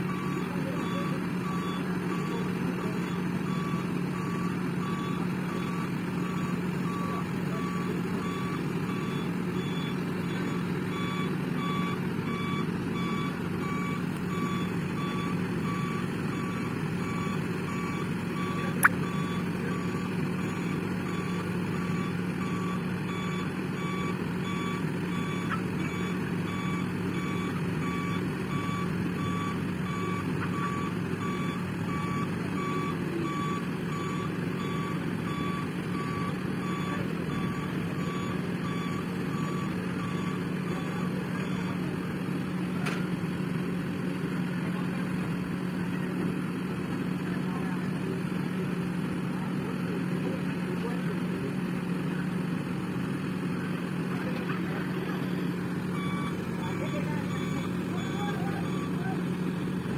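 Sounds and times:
diesel engine running under load: 0.0 - 59.9
warning alarm beeping: 0.1 - 41.8, 55.1 - 59.9.

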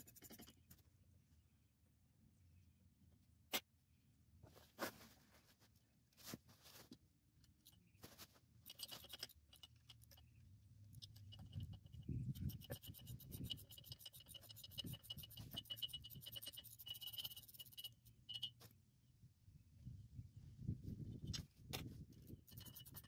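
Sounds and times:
rapid metallic clicks: 8.6 - 18.6.

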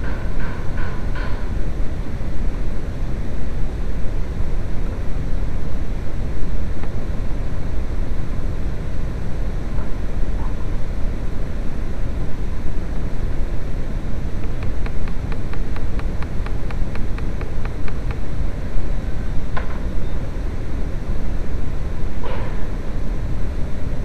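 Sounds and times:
rapid ticks: 14.4 - 18.2.

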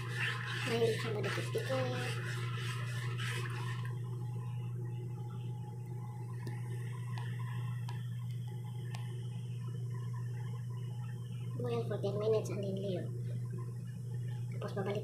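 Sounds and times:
spoon scraping in a pot: 0.0 - 3.8
steady low hum: 0.0 - 15.0
water boiling in a pot: 0.0 - 15.0.

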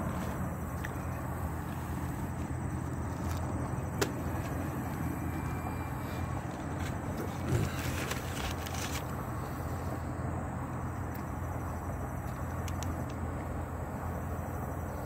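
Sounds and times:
low background hum: 0.0 - 15.0
paper wrapper crinkling: 6.8 - 9.1.

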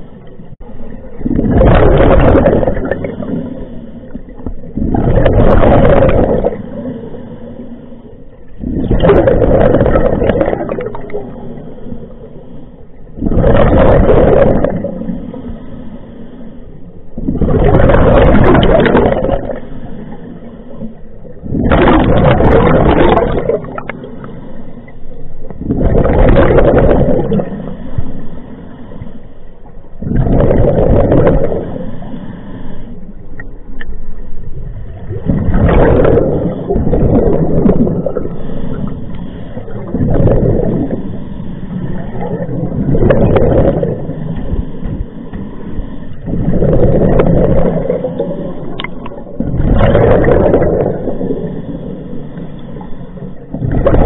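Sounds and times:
exhaled bubbles rushing: 0.0 - 7.4, 8.2 - 15.6, 17.1 - 24.4, 25.0 - 28.2, 29.7 - 32.1, 34.0 - 45.5, 46.1 - 54.0
diver breathing through regulator: 35.3 - 48.8.

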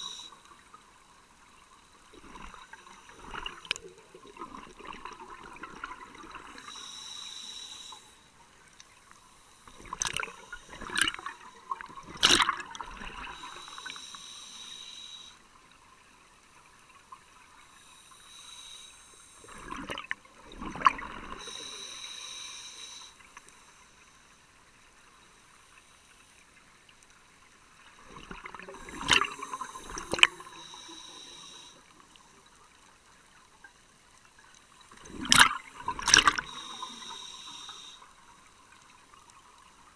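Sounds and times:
diver inhaling through regulator: 6.4 - 8.2, 13.2 - 15.4, 17.8 - 19.8, 21.3 - 23.2, 28.6 - 31.9, 35.2 - 38.1
bubbling exhale underwater: 28.2 - 30.6, 35.0 - 37.2.

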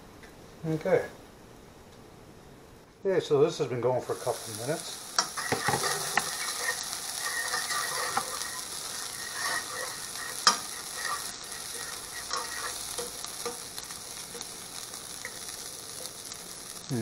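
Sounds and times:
vegetables sizzling in a frying pan: 3.9 - 17.0
metal fork scraping a pan: 5.2 - 13.7.

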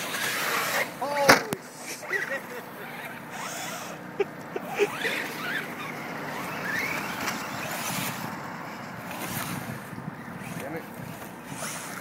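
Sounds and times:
toy truck motor whining: 1.9 - 8.3, 11.4 - 12.0.

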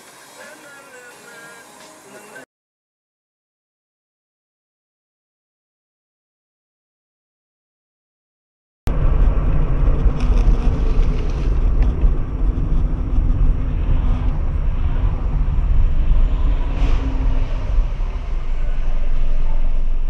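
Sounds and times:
car engine and road rumble: 8.9 - 20.0.

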